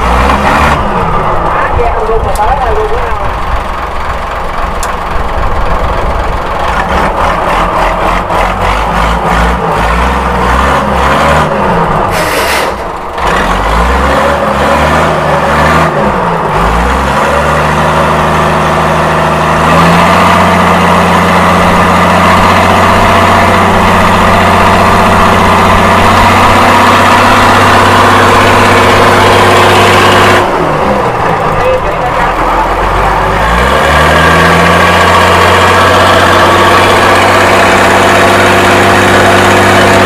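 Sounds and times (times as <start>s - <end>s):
boat diesel engine revving: 0.0s - 40.0s.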